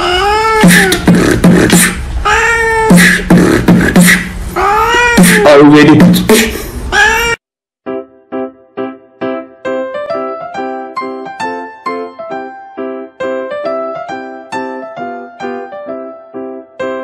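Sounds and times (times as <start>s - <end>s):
cat meowing: 0.0s - 1.1s, 2.2s - 3.0s, 4.6s - 5.6s, 6.9s - 7.4s
person beatboxing: 0.5s - 2.1s, 2.8s - 4.4s, 5.1s - 6.6s.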